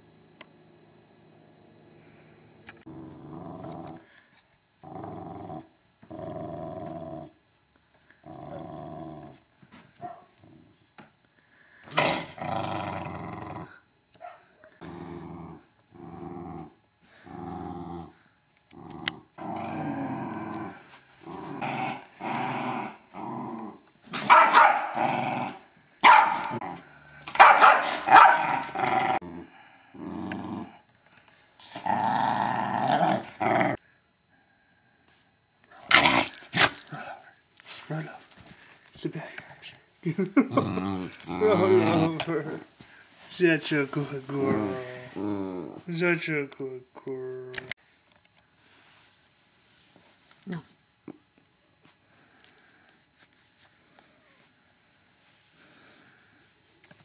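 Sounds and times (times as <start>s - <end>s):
dog play-growling: 2.6s - 4.2s, 4.8s - 7.4s, 8.2s - 9.4s, 11.9s - 13.8s, 14.8s - 25.7s, 26.3s - 30.9s, 31.6s - 33.8s, 35.8s - 37.2s, 40.4s - 42.7s, 44.0s - 45.9s
dog barking: 10.0s - 10.3s, 14.2s - 14.6s, 24.2s - 25.0s, 26.0s - 26.6s, 27.3s - 28.6s.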